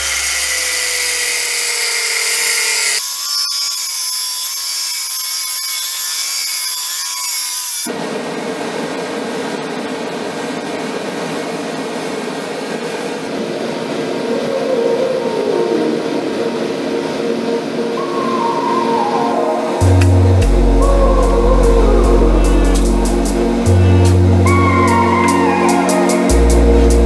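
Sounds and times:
power tool motor whining: 0.0 - 7.9
tool with wavering whine: 0.0 - 8.0, 17.9 - 27.0
steady rushing noise: 7.9 - 27.0.

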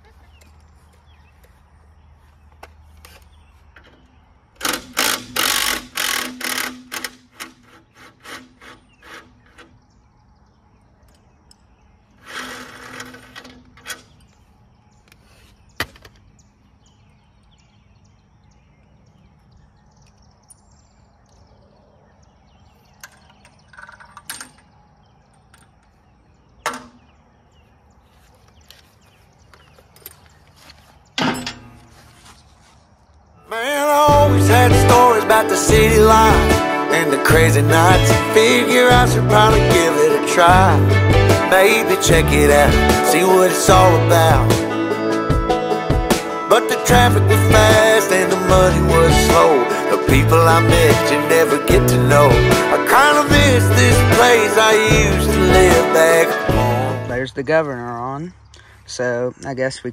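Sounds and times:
cordless power tool bursts: 4.6 - 9.7
metal tools clanking: 31.2 - 32.1.

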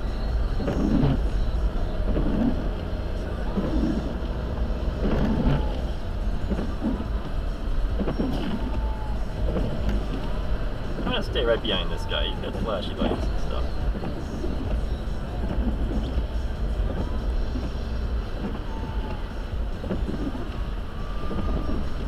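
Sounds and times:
car road and engine rumble: 0.0 - 22.0.

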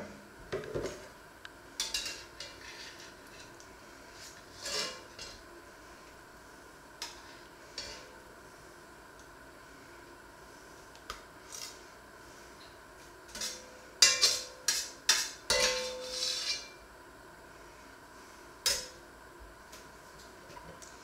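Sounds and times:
metal spatula scraping cast-iron pot: 1.8 - 3.5, 4.2 - 5.4, 7.0 - 8.1, 13.3 - 16.8.

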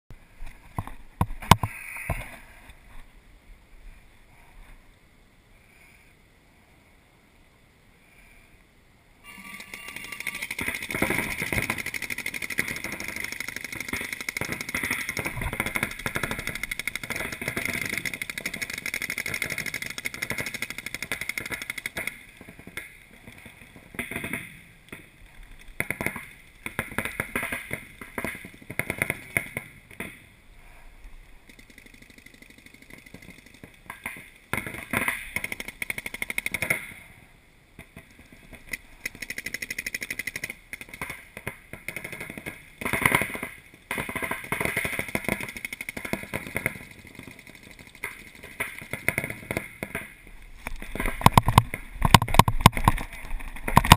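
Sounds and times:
paintball markers firing: 9.9 - 30.2, 31.4 - 37.0, 37.8 - 53.9.

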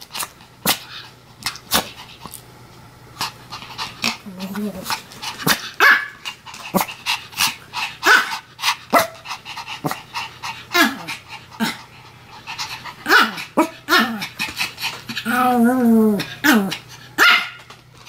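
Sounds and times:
small dog barking in yaps: 5.8 - 6.2, 8.0 - 8.3, 17.2 - 17.7.

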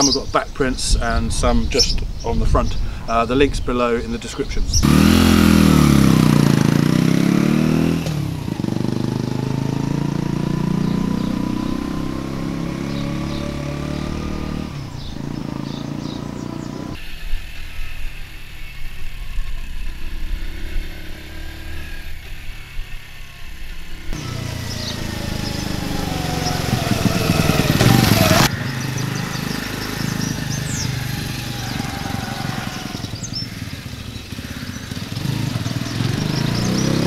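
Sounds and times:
motorcycle engine running: 4.8 - 37.0.

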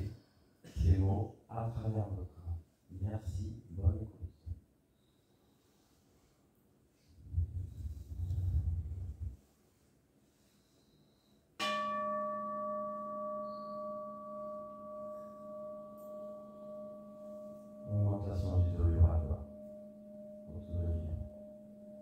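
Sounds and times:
deep male voice: 0.7 - 4.3, 17.9 - 19.5, 20.5 - 21.3
singing bowl ringing: 11.6 - 22.0.

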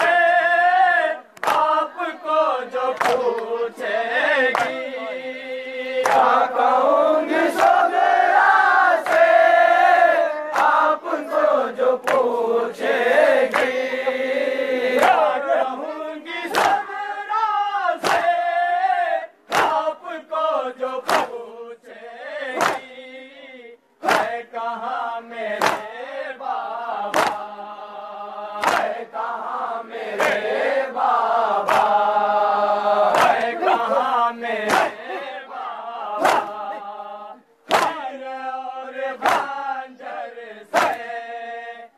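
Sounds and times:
men chanting in chorus: 0.0 - 41.9
chest-beating slaps: 1.4 - 1.7, 3.0 - 3.5, 16.5 - 16.8, 18.0 - 18.4, 19.5 - 19.9, 21.0 - 21.4, 22.6 - 22.9, 24.0 - 24.4, 25.6 - 25.9, 27.1 - 27.5, 28.6 - 29.0, 30.2 - 30.4, 31.6 - 32.0, 33.0 - 33.9, 34.6 - 35.3, 36.2 - 36.8, 37.7 - 38.1, 39.2 - 39.6, 40.8 - 41.1.

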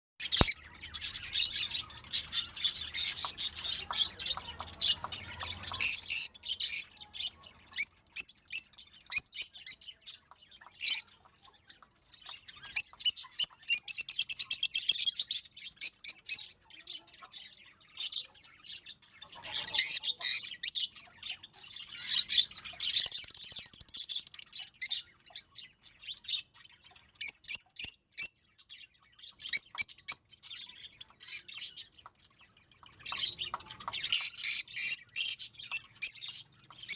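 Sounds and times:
lovebirds chirping and squeaking: 0.2 - 36.9
rapid high bird chattering: 22.9 - 24.5.

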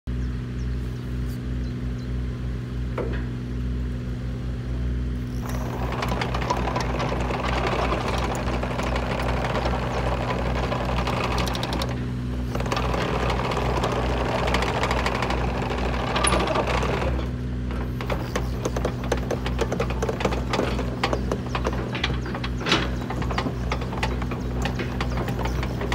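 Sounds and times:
diesel engine running: 0.1 - 25.9
excavator tracks rattling clatter: 5.2 - 25.9.

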